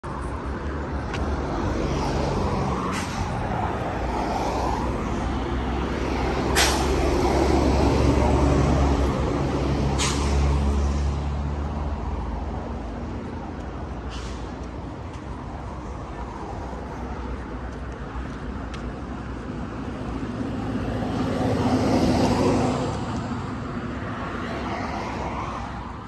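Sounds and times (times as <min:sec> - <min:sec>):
road traffic: 0:00.0 - 0:26.0
heavy truck engine passing: 0:01.3 - 0:15.6.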